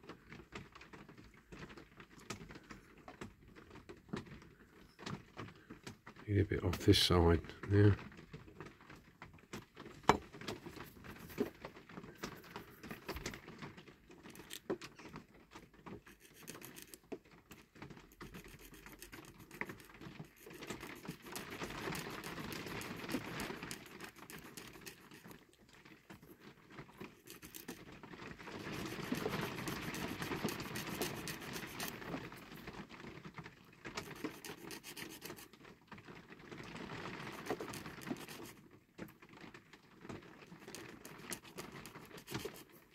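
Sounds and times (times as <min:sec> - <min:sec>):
hand file rasping: 0:16.1 - 0:17.0, 0:18.1 - 0:25.4, 0:27.1 - 0:27.8, 0:28.6 - 0:32.4, 0:34.0 - 0:35.5, 0:37.2 - 0:38.6, 0:40.6 - 0:42.8.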